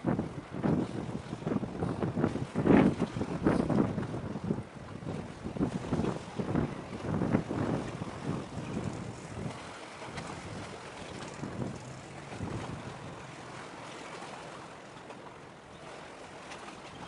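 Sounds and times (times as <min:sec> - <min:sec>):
wind buffeting microphone: 0:00.0 - 0:17.0
sea and surf hiss: 0:05.6 - 0:16.9.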